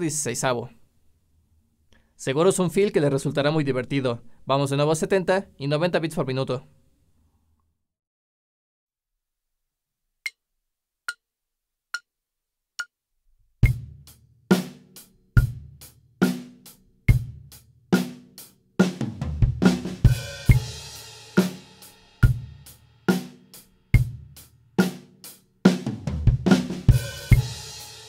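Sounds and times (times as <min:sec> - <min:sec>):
acoustic drum kit groove: 0:13.6 - 0:28.0.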